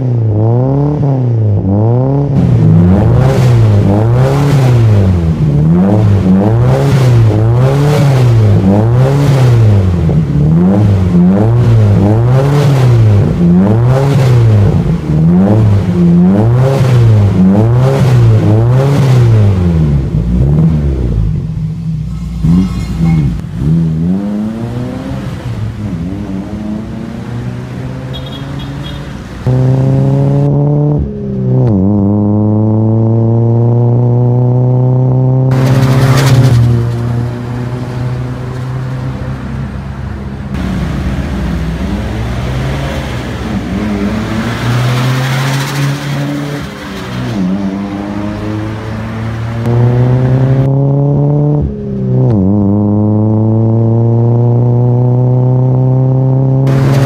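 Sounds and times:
car engine revving: 0:00.0 - 0:57.0.

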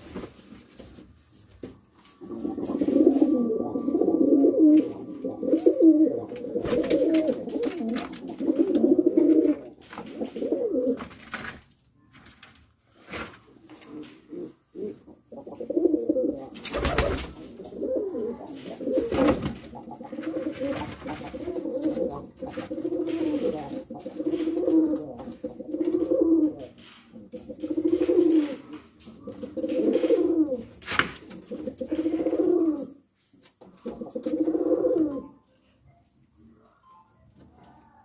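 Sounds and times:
pigeons cooing: 0:02.2 - 0:11.1, 0:13.9 - 0:33.0, 0:33.8 - 0:35.4.

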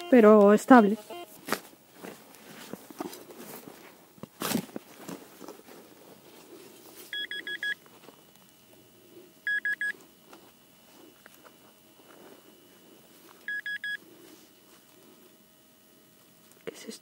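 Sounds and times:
metal detector beeping: 0:00.0 - 0:01.4, 0:07.1 - 0:07.9, 0:09.4 - 0:10.0, 0:13.4 - 0:14.0
shovel crunching into soil: 0:04.3 - 0:05.6
faint steady tone: 0:06.3 - 0:16.9.

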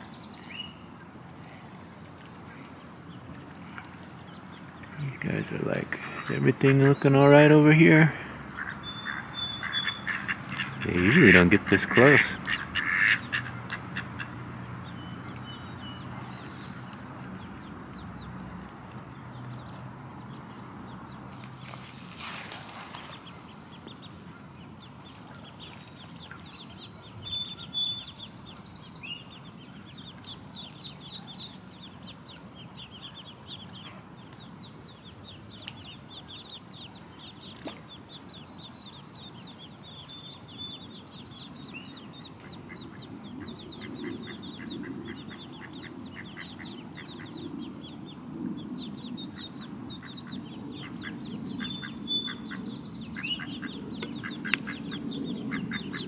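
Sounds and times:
ducklings peeping: 0:00.0 - 0:56.0.

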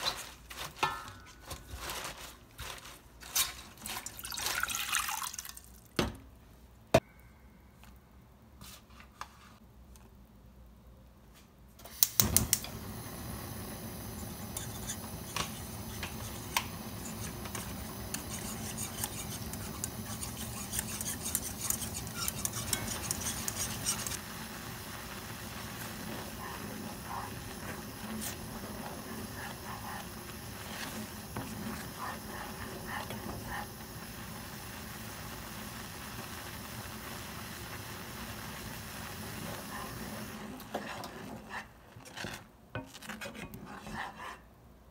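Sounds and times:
gas burner igniter clicks: 0:11.8 - 0:12.9
gas burner hissing: 0:11.8 - 0:41.5
wooden spatula stirring in pot: 0:14.5 - 0:33.8, 0:39.3 - 0:44.6.

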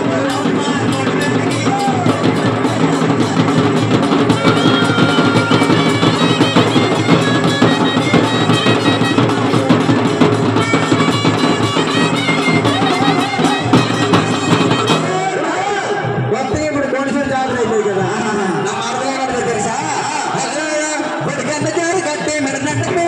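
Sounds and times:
live folk music: 0:00.0 - 0:18.2
drums in fast rhythm: 0:00.0 - 0:23.0.

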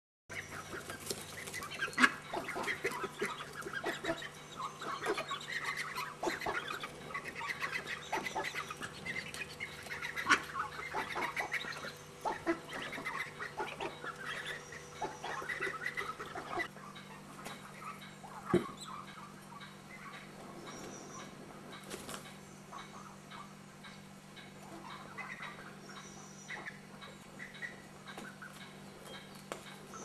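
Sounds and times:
ducks quacking: 0:00.3 - 0:20.3, 0:21.2 - 0:29.2.

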